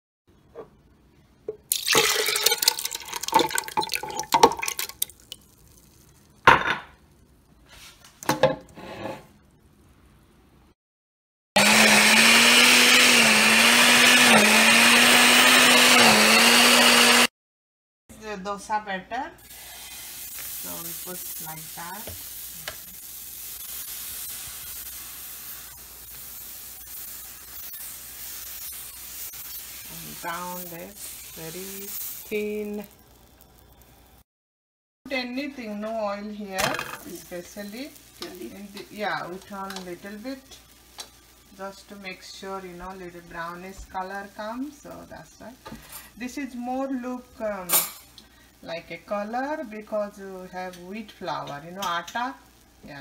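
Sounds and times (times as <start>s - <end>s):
batter sizzling on hot griddle: 4.8s - 8.0s, 19.4s - 34.2s, 35.3s - 53.0s.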